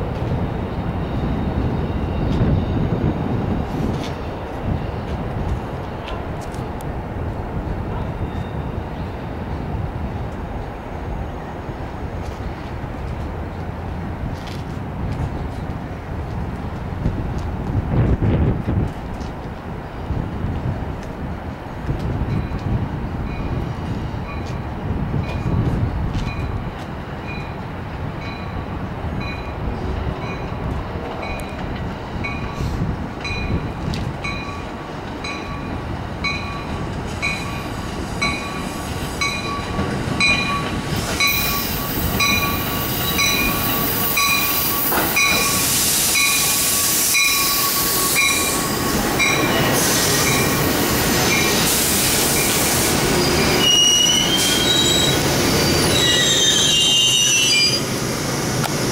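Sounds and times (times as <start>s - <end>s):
electric train arriving: 0.0s - 58.9s
high wheel squeals: 41.2s - 50.6s, 51.2s - 57.9s.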